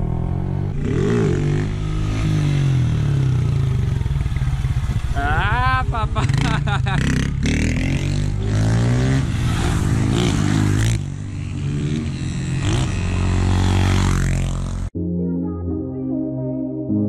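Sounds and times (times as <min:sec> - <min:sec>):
motorcycle engine revving: 0:00.0 - 0:14.9.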